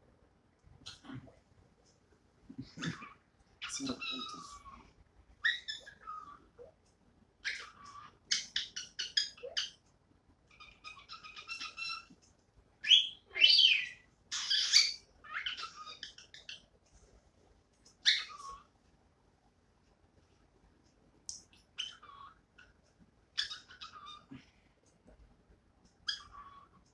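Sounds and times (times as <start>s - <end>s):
cockatiel chirping and whistling: 7.4s - 9.7s, 10.6s - 12.1s, 12.8s - 16.5s, 18.0s - 18.6s, 23.4s - 24.2s.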